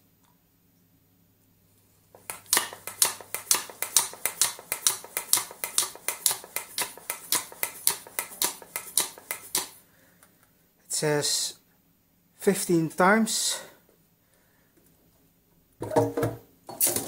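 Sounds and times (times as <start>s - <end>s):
hand pump clicking: 2.2s - 9.8s.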